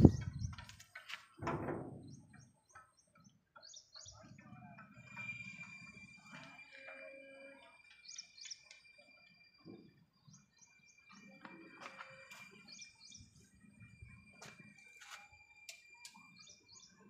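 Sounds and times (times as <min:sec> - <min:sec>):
bird chirps: 0:02.0 - 0:04.6, 0:07.8 - 0:11.4, 0:12.4 - 0:13.6, 0:15.7 - 0:17.0.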